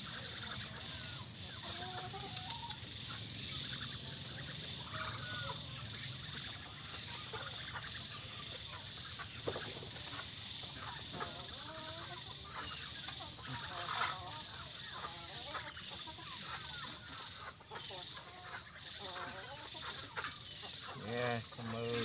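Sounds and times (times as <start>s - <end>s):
steady high hiss: 0.0s - 13.7s
chickens clucking: 0.0s - 22.0s.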